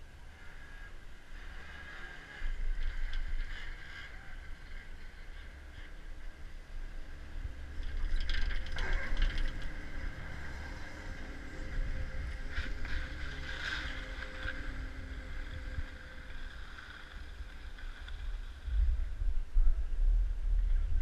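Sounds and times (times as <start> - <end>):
faint steady whine: 0.0 - 21.0
wind buffeting microphone: 5.7 - 21.0
skis scraping on snow: 7.6 - 18.8.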